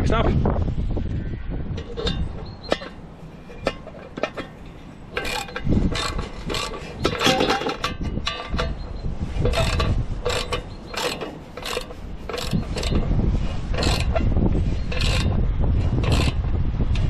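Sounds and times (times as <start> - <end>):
ratchet spanner clicking: 5.1 - 8.8, 9.4 - 13.1, 13.7 - 17.0.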